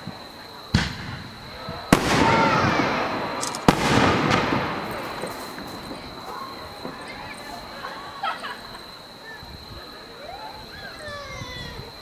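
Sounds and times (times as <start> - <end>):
fireworks bangs: 0.0 - 12.0
rumbling echo: 0.8 - 7.0.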